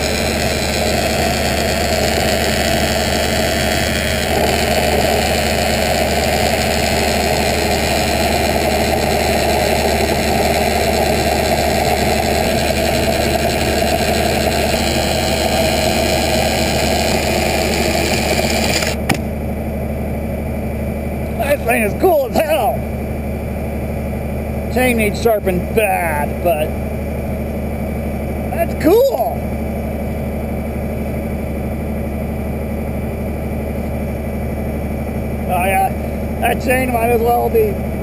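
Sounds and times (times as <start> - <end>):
chainsaw cutting log: 0.0 - 19.4
tractor engine running: 0.0 - 38.0.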